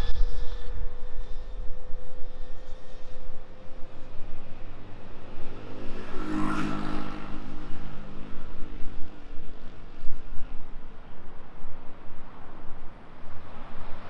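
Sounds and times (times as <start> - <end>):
low traffic rumble: 0.0 - 14.0
vehicle passing close by: 4.5 - 9.7.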